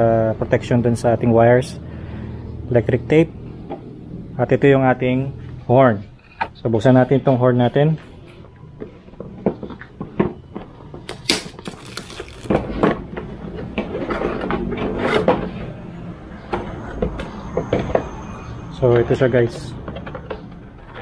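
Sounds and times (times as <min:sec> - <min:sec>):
cardboard scraping and rustling: 0:11.6 - 0:15.6.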